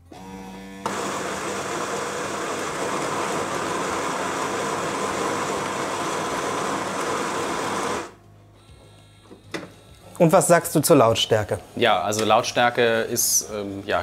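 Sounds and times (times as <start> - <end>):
coffee grinder whirring: 0.8 - 8.2.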